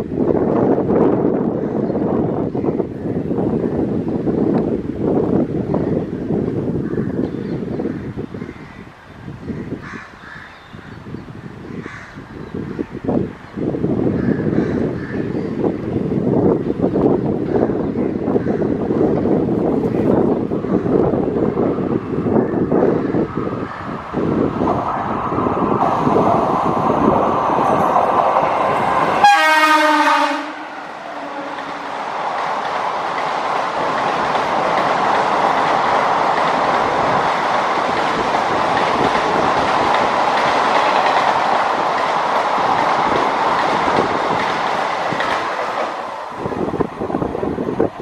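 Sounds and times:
train coaches roaring over rails: 0.0 - 48.0
train horn blast: 29.0 - 32.0.

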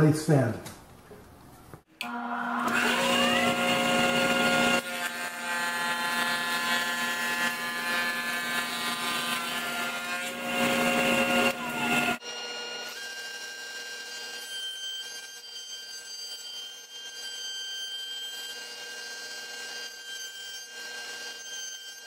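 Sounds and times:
jointer whining: 2.0 - 12.2.

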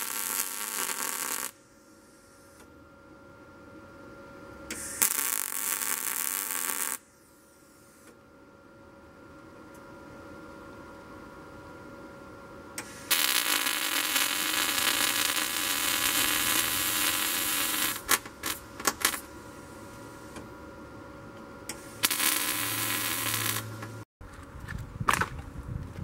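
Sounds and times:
arc welder crackling: 0.0 - 1.6, 4.7 - 7.1, 12.8 - 19.3, 21.7 - 24.0.

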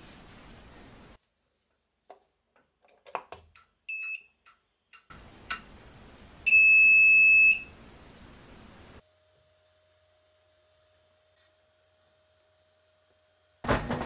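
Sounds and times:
printer buzzer beeping: 6.5 - 7.7.

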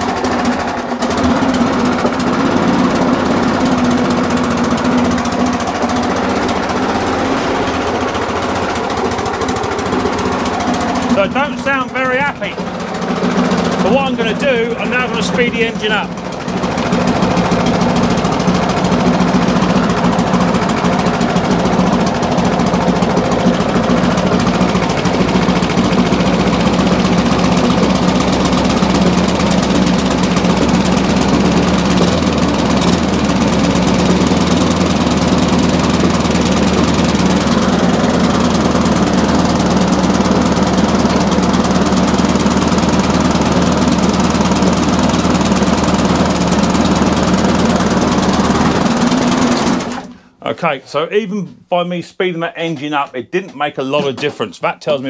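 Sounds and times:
lawn mower engine running: 0.0 - 50.4.

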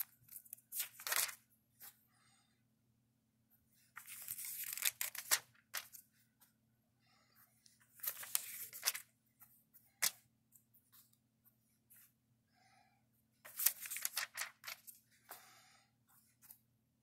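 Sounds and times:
paper pages rustling: 0.0 - 2.0, 3.8 - 6.5, 7.7 - 11.2, 13.4 - 15.4.

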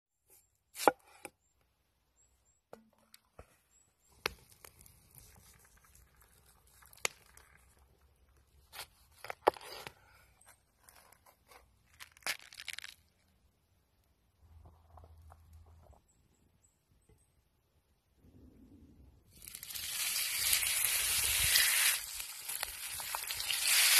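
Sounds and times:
cleaver crunching through vegetables: 11.9 - 13.0.

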